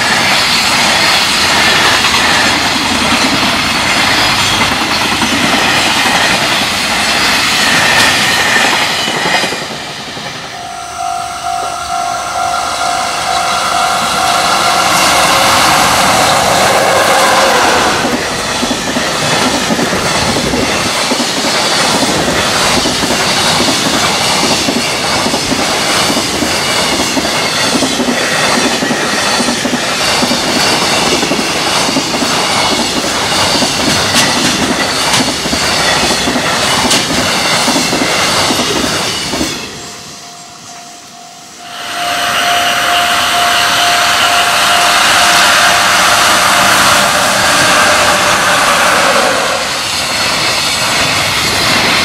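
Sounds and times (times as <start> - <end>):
steady high tone: 0.0 - 20.8, 38.9 - 50.8
freight train passing: 0.0 - 52.0
wheels clattering over rail joints: 18.0 - 39.8.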